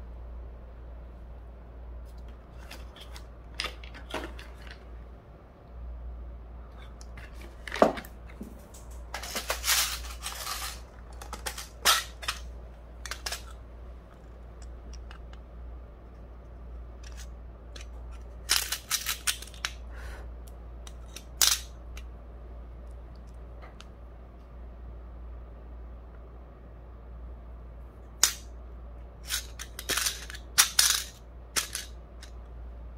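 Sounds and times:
faint low hum: 0:00.0 - 0:32.9
rustling: 0:06.9 - 0:13.5.

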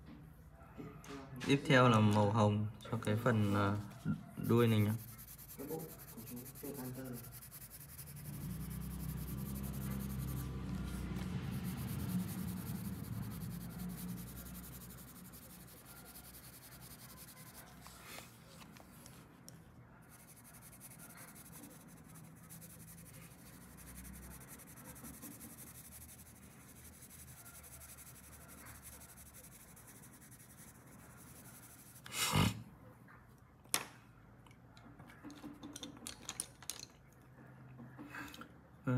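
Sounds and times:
colored pencil scratching on paper: 0:03.0 - 0:19.2, 0:20.0 - 0:32.5.

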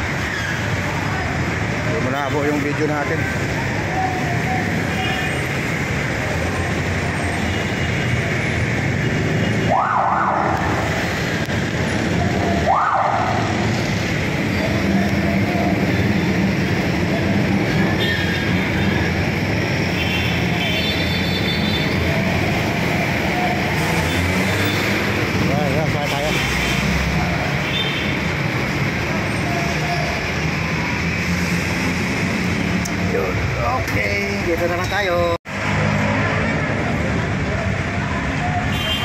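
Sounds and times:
street traffic engine and road noise: 0:00.0 - 0:39.0
siren whoops: 0:09.6 - 0:10.9, 0:12.2 - 0:13.7.

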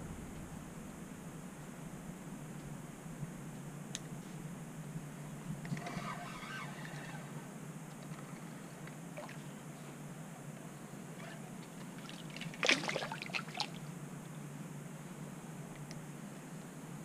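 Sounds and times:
fish splashing at water surface: 0:12.0 - 0:13.8.

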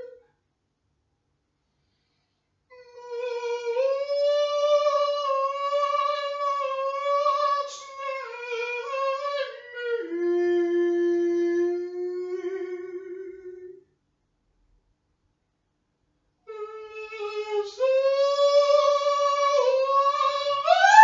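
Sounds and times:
man singing into a microphone: 0:16.9 - 0:21.0.

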